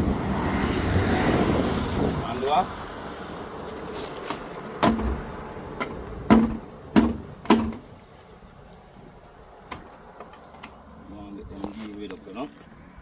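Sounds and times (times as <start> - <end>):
sharp knocks: 4.8 - 7.8.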